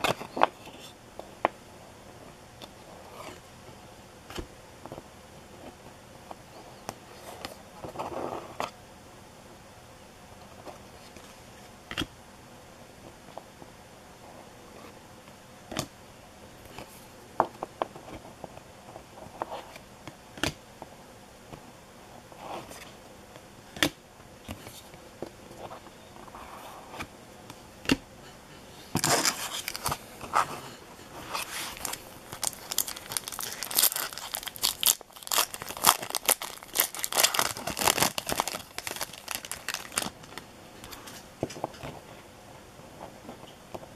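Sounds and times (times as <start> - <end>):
foil wrapper tearing and crinkling: 29.0 - 30.0, 31.4 - 40.4.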